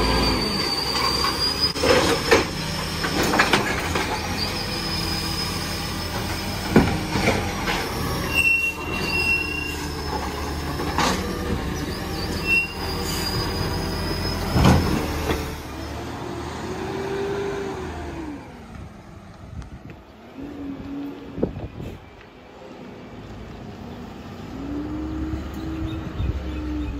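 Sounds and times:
hydraulic arm squealing: 0.0s - 16.0s
diesel truck engine: 0.0s - 26.9s.

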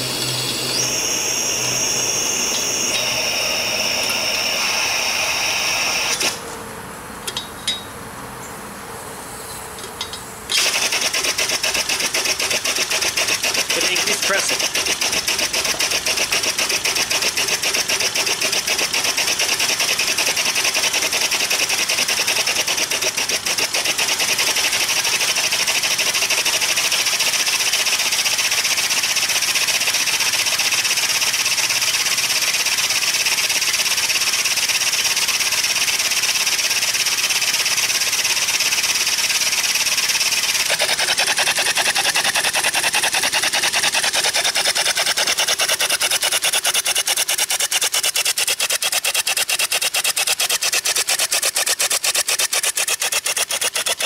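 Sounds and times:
air-powered engine exhaust puffs: 0.0s - 6.7s, 10.5s - 54.0s.

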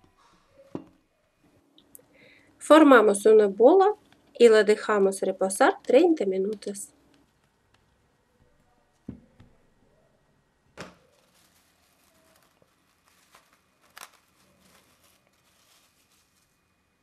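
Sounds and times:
cling film crinkling: 11.0s - 16.8s.

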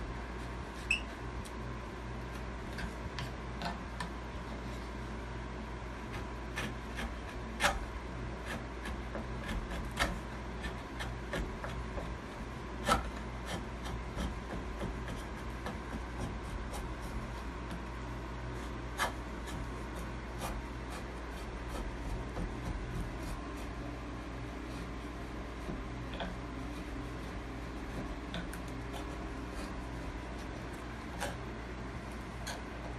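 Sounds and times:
carving blade scraping wood: 6.0s - 17.9s, 18.5s - 31.5s, 32.1s - 32.9s.

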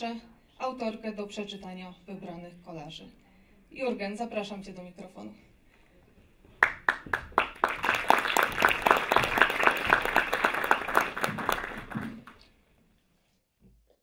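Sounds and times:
audience applauding: 6.6s - 12.4s.

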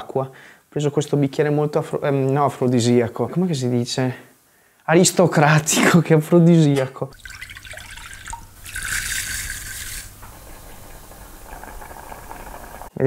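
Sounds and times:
water pouring into saucepan: 7.1s - 12.9s
rice simmering hiss: 7.2s - 13.0s.

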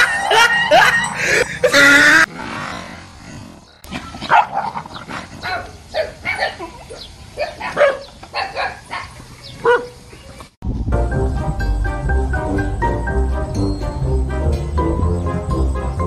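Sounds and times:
small dog barking and yelping: 4.2s - 4.8s, 5.4s - 10.0s.

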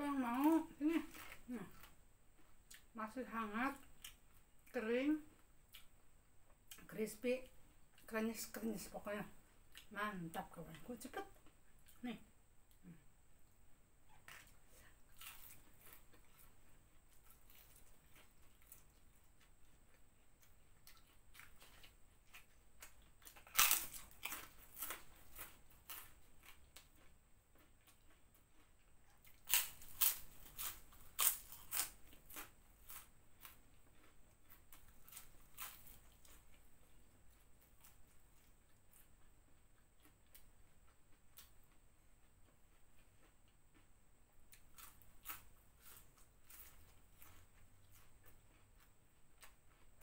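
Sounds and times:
crispy snacks crunching: 15.1s - 28.2s, 29.2s - 36.6s.

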